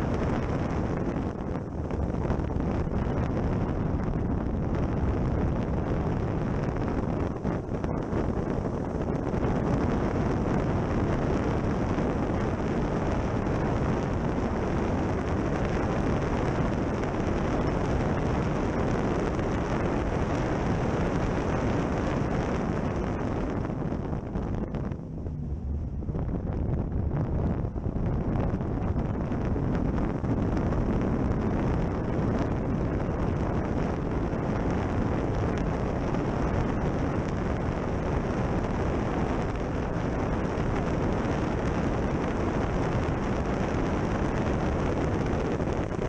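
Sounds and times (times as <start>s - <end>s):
heavy wind noise: 0.0s - 46.0s
car engine: 23.2s - 28.0s.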